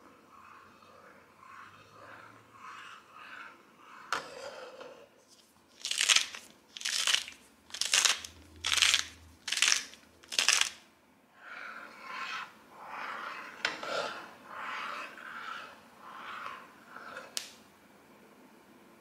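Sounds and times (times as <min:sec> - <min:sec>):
salt mill grinding crunches: 0:05.8 - 0:10.8
ladle stirring thick soup: 0:11.4 - 0:17.4.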